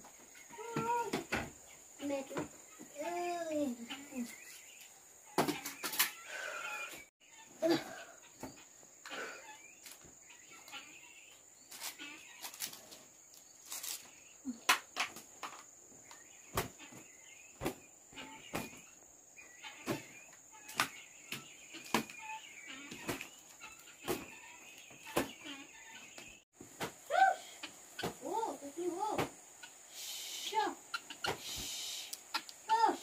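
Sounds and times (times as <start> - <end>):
crickets chirring: 7.7 - 26.4, 27.4 - 33.0.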